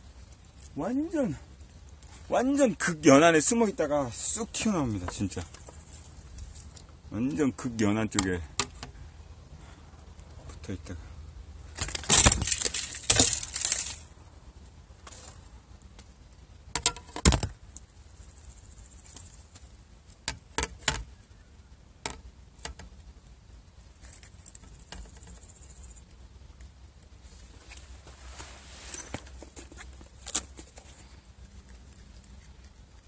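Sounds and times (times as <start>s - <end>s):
fishing tackle clicks and rustling: 11.8s - 14.1s.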